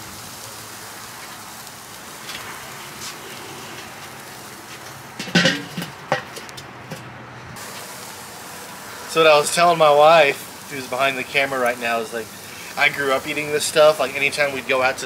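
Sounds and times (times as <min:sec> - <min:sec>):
meat sizzling over charcoal: 0:00.0 - 0:07.0, 0:07.6 - 0:15.0
metal grill lid clanking: 0:05.2 - 0:07.1.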